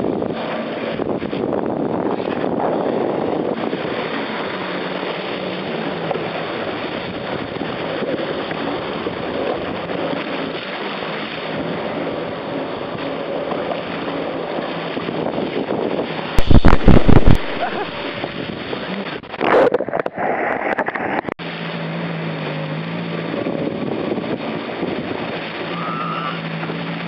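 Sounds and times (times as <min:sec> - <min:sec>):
faint watercraft engine hum: 0:00.0 - 0:27.0
wind and water rushing: 0:00.0 - 0:27.0
loud distorted thumps: 0:16.4 - 0:17.7.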